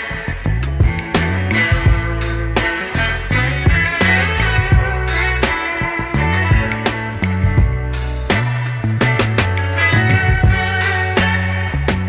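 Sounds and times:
instrumental rock music: 0.0s - 12.0s.

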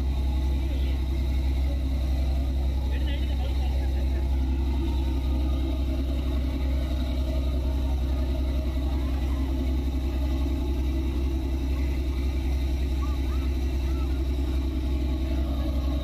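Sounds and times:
boat engine idling: 0.0s - 16.0s.

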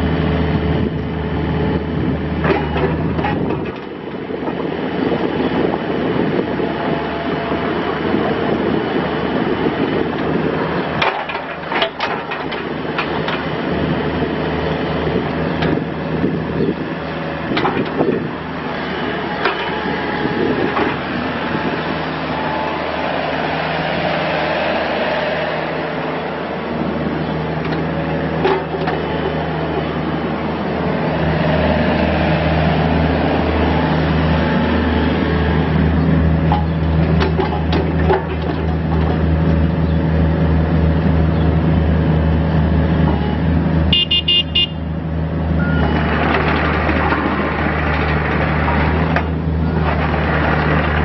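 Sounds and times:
excavator diesel engine running: 0.0s - 51.0s
metallic clanks and knocks: 11.0s - 13.4s, 28.4s - 29.3s, 36.5s - 39.2s.

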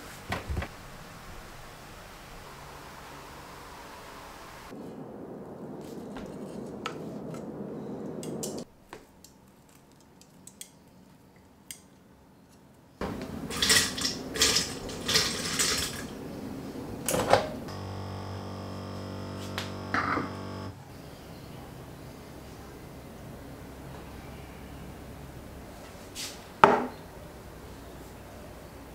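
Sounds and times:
coffee machine pump humming: 13.0s - 16.2s, 17.4s - 20.8s.

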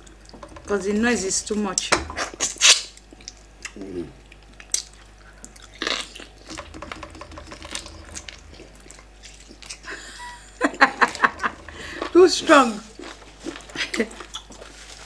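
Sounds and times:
chewing and lip smacks: 2.6s - 6.4s, 8.5s - 9.9s.

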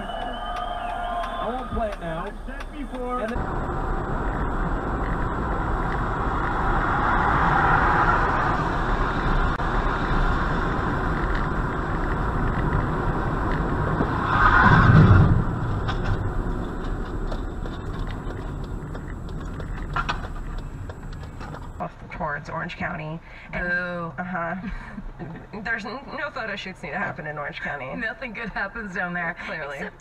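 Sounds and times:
tyre noise on wet road: 0.0s - 21.9s
engine rumble: 0.0s - 25.8s.

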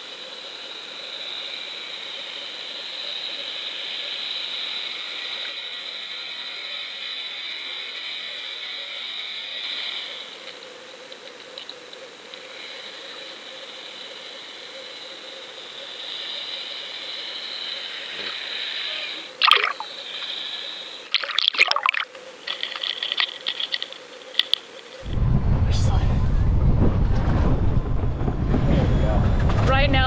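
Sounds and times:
steady high whine: 0.0s - 28.7s
sharp clicks and crackles: 21.2s - 25.1s.

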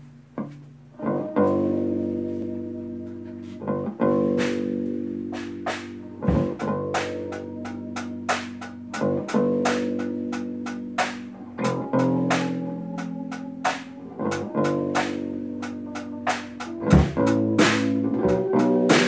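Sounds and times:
sustained chords: 1.0s - 19.0s
drum hits: 4.1s - 12.6s, 13.3s - 19.0s.

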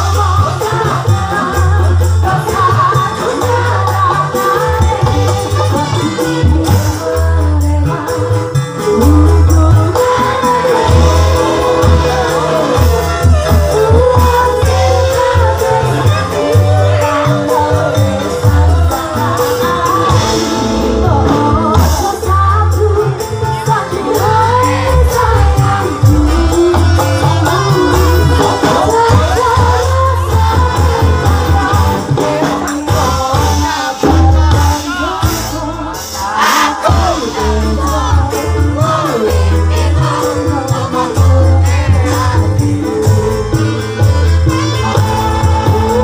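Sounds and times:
live band music: 0.0s - 46.0s
woman singing into microphone: 0.0s - 46.0s
low bass line: 3.4s - 23.4s
drum beat: 25.5s - 43.4s.

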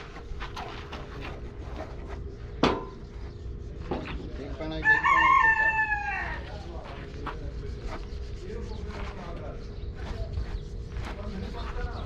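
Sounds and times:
rooster crowing: 4.8s - 6.5s.

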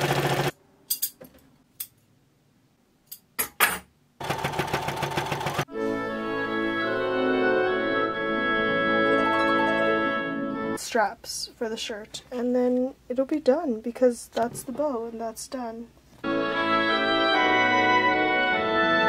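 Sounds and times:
sewing machine stitching: 0.0s - 0.5s, 4.2s - 5.7s
background keyboard music: 5.7s - 10.8s, 16.2s - 19.0s.

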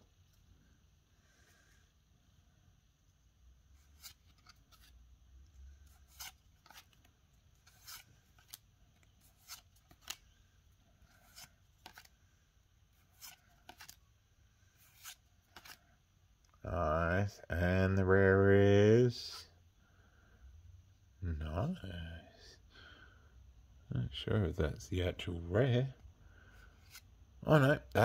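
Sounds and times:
trading cards swishing and flicking: 5.8s - 12.2s, 13.0s - 14.0s, 14.7s - 15.9s.

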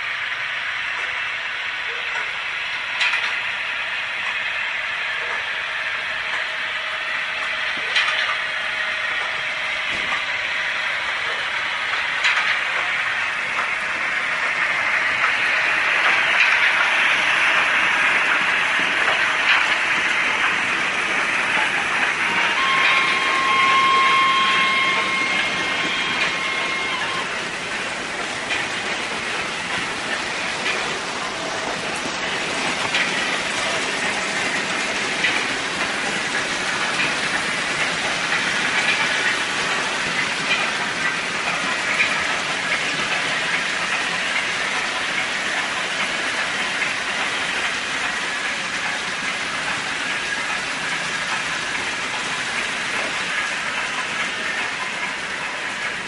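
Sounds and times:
model trains clattering on track: 0.0s - 56.0s
steady high tone: 21.5s - 28.2s.

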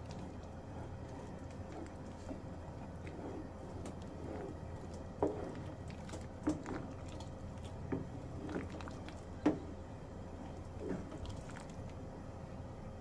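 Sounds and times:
stew squelching while stirred: 0.0s - 9.7s, 10.3s - 12.0s.

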